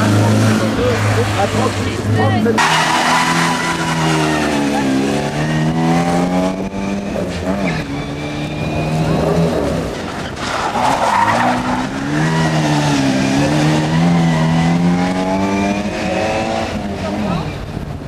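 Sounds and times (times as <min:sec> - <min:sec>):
rally car engine at high revs: 0:00.0 - 0:18.0
tyres squealing on tarmac: 0:02.6 - 0:05.7, 0:07.5 - 0:09.4, 0:10.0 - 0:12.2.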